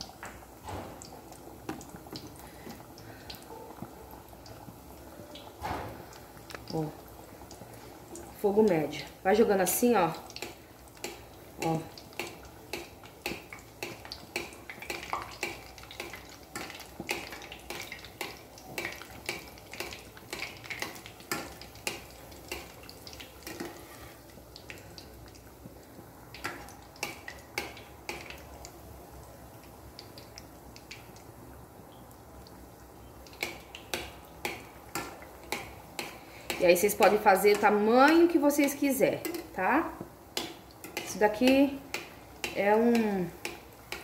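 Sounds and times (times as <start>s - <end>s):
oil sizzling: 0.0s - 44.0s.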